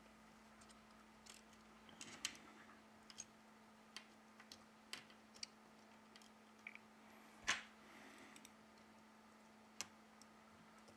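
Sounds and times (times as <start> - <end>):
faint clicks of small tools: 8.3 - 9.0.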